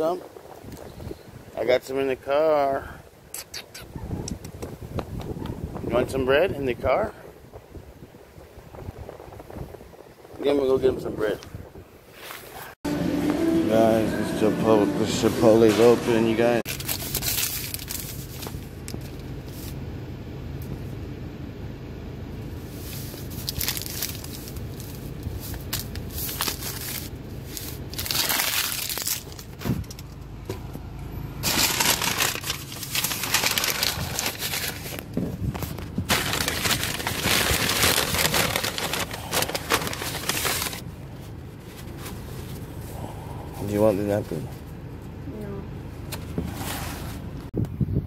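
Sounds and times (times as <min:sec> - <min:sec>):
paper crinkling and rustling: 0:16.6 - 0:19.8, 0:22.8 - 0:30.1, 0:31.4 - 0:40.8
steady low hum: 0:29.8 - 0:47.5.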